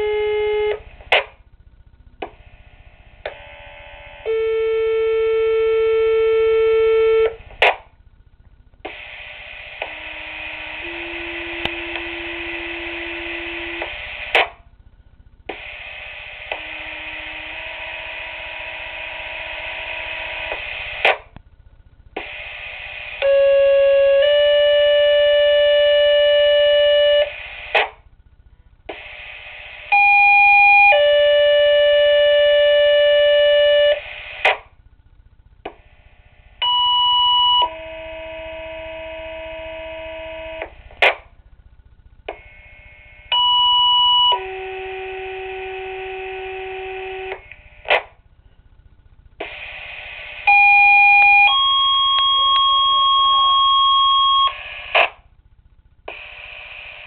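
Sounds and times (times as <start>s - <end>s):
radio hiss: 19.4s - 21.4s
two-tone pager tones: 50.5s - 55.1s.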